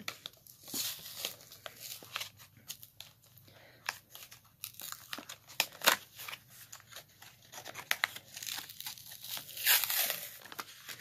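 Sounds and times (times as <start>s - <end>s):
plastic package crinkling and tearing: 0.0s - 11.0s.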